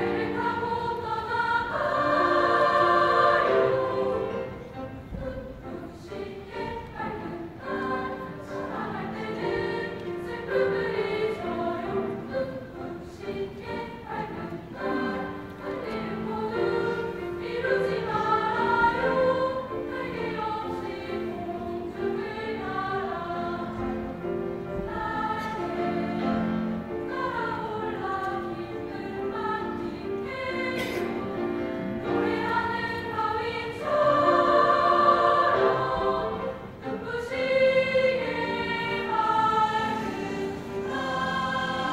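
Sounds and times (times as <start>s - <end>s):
girls' choir singing: 0.0s - 41.9s.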